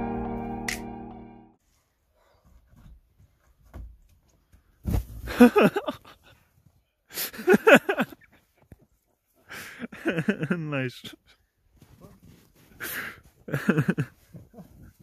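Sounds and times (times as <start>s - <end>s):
body thumping into snow: 4.8s - 5.6s.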